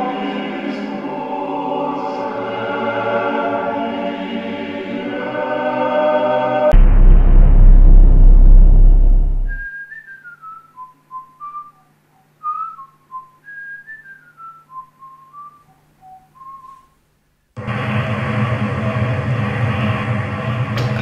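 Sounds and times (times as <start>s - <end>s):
loud low rumble: 6.7s - 9.6s, 17.6s - 21.0s
faint steady hum: 6.8s - 17.6s
man whistling a slow tune: 9.5s - 17.0s.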